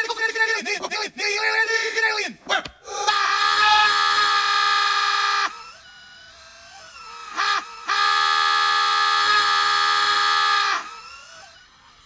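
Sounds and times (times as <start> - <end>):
faint wavering sounds: 4.8 - 12.0.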